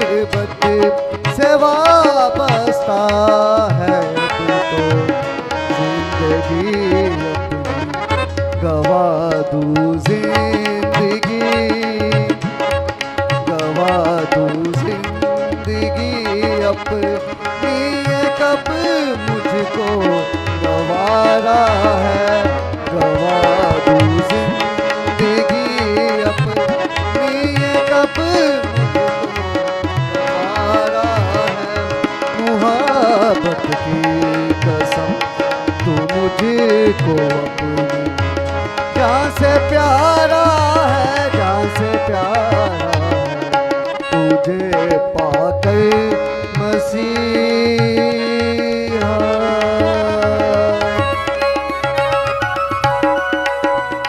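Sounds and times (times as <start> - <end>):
harmonium chords: 0.0 - 54.0
tabla playing: 0.0 - 54.0
sliding melody: 11.2 - 54.0.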